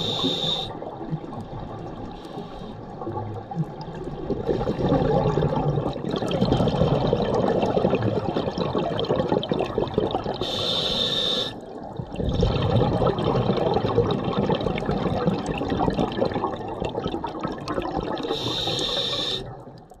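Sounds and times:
regulator hissing inhalation: 0:00.0 - 0:00.7, 0:10.4 - 0:11.6, 0:18.3 - 0:19.5
exhaled bubbles underwater: 0:00.0 - 0:20.0.

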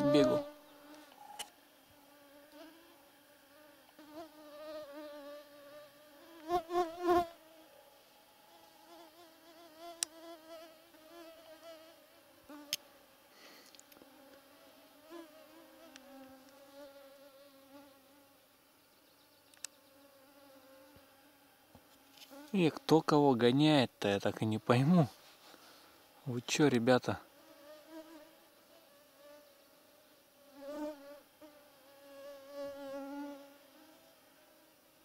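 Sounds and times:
mosquitoes whining: 0:00.0 - 0:11.8.

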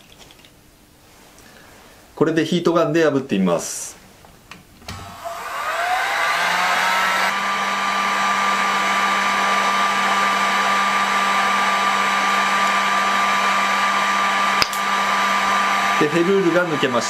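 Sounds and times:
heat gun blowing: 0:04.9 - 0:17.0
heat gun switch click: 0:14.6 - 0:14.9.

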